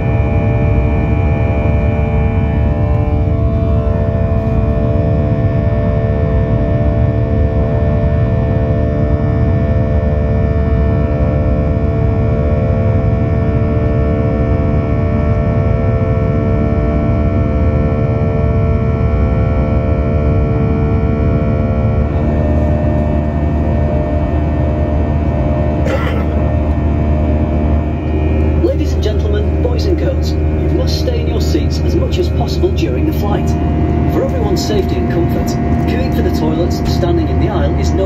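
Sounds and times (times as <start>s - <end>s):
jet engine drone with fan tones: 0.0s - 38.0s
cabin hum: 0.2s - 5.6s, 21.8s - 38.0s.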